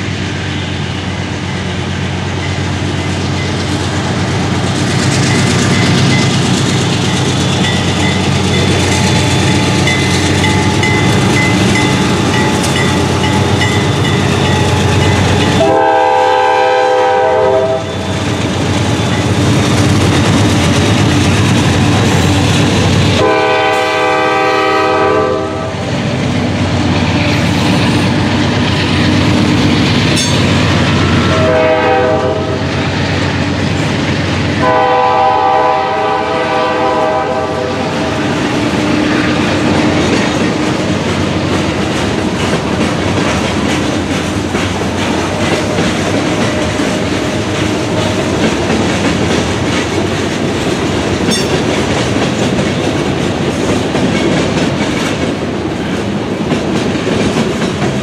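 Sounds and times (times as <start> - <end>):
freight train rumble: 0.0 - 58.0
train air horn blasts: 15.4 - 18.1, 23.1 - 25.8, 30.9 - 32.7, 34.6 - 38.0.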